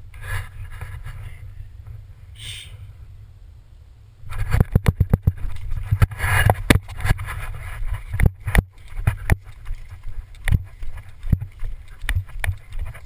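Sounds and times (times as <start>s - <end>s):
rustling: 4.2s - 13.0s.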